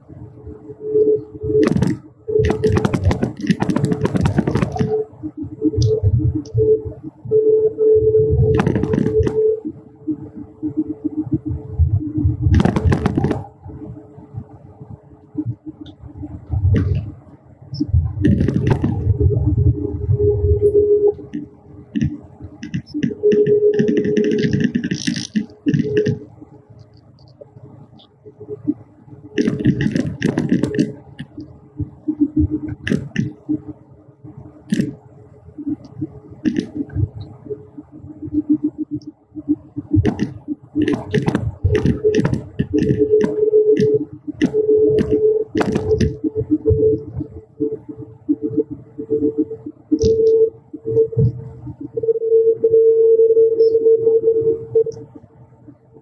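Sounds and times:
vehicle ride hum: 0:00.0 - 0:56.0
low running rumble: 0:04.9 - 0:23.9.

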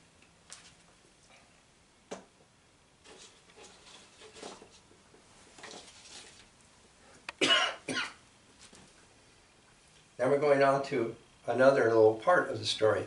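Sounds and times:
man coughing: 0:07.4 - 0:08.2.

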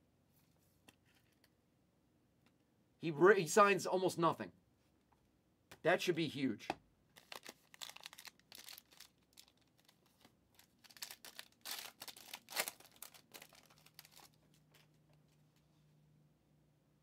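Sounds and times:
wrapper tearing and crinkling: 0:07.2 - 0:14.4.

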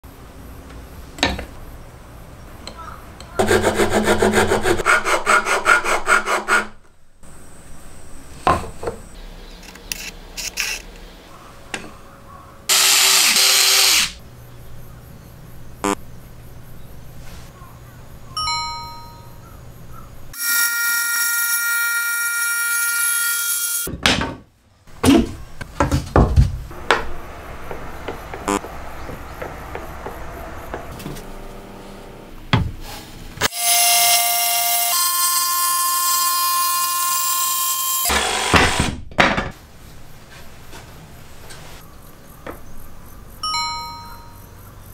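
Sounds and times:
jigsaw motor whining: 0:12.7 - 0:14.2
loud burst of noise: 0:26.7 - 0:31.8.

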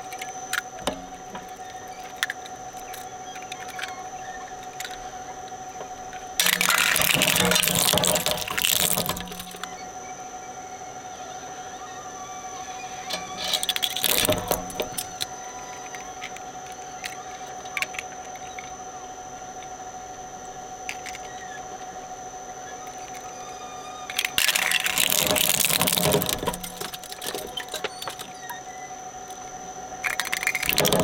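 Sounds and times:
toy shredder whining: 0:00.0 - 0:31.0
clicks and rattles: 0:06.1 - 0:09.7, 0:13.1 - 0:18.7, 0:20.8 - 0:21.5, 0:24.1 - 0:28.7, 0:30.0 - 0:31.0.

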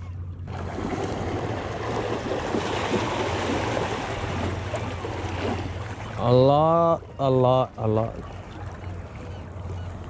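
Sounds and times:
fish splashing at water surface: 0:00.5 - 0:06.1.

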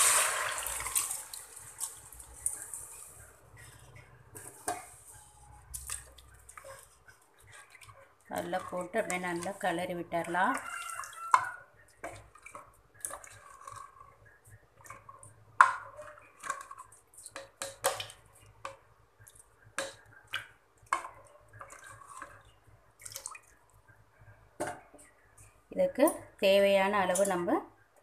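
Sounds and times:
wet sloshing and squelching: 0:00.0 - 0:11.3, 0:21.2 - 0:23.7.

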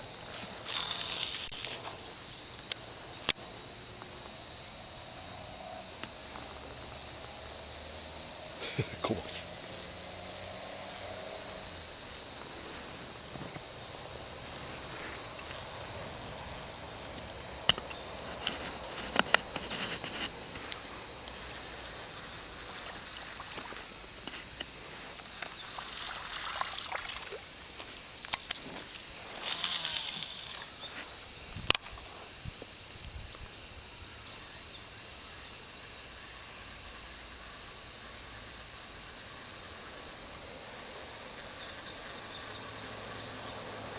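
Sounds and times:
insects chorus: 0:00.0 - 0:43.9
sharp clicks and knocks: 0:17.6 - 0:20.4.

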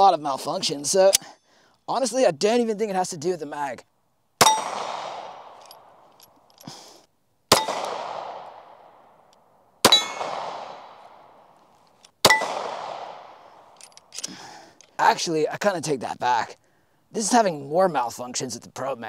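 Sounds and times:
pistol shots: 0:04.4 - 0:06.0, 0:07.5 - 0:09.0, 0:09.8 - 0:11.2, 0:12.2 - 0:13.7.

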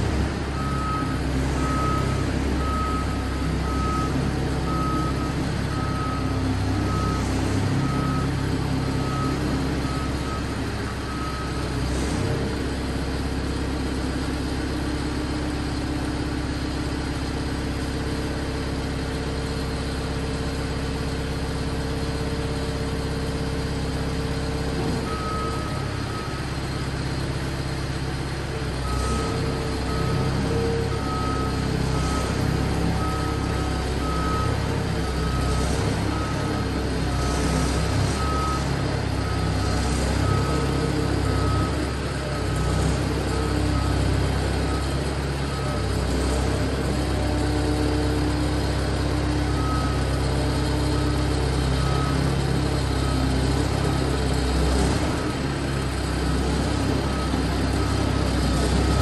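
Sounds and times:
engine running steadily: 0:00.0 - 0:59.0
reversing alarm beeps: 0:00.5 - 0:12.0, 0:24.8 - 0:26.4, 0:28.8 - 0:59.0.

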